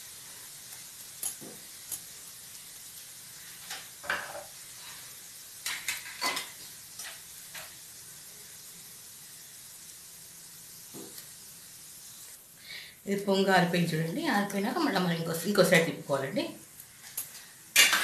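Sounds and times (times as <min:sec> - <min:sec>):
food deep-frying in hot oil: 0:00.0 - 0:18.0
oil crackling and popping: 0:00.4 - 0:08.0, 0:10.8 - 0:11.5, 0:16.8 - 0:18.0.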